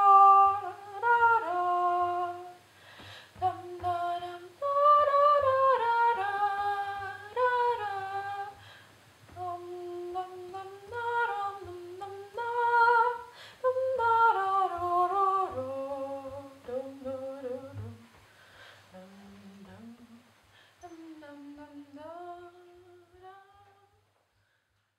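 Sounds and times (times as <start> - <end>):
woman humming: 18.9 - 24.0.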